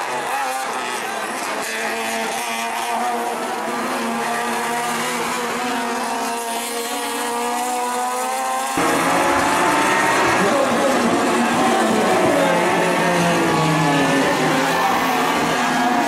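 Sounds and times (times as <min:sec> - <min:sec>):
race car engines revving: 0:00.0 - 0:16.0.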